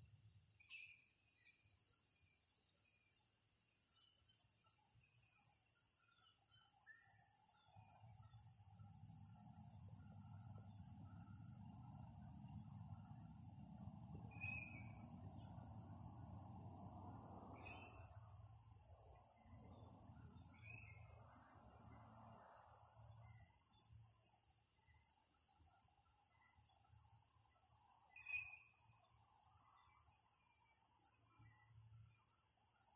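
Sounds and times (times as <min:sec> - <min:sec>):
bird chirps: 0:03.9 - 0:18.4, 0:19.4 - 0:22.0, 0:28.0 - 0:30.1.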